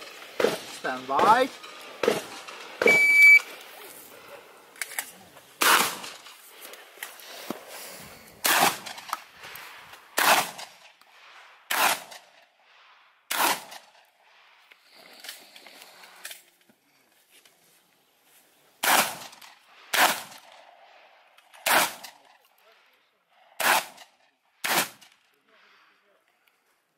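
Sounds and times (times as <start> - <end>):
shotgun shots: 0.1 - 3.4, 5.6 - 6.4, 8.4 - 9.1, 10.2 - 10.9, 11.7 - 12.3, 13.3 - 13.9, 18.8 - 20.5, 21.6 - 22.3, 23.6 - 25.1.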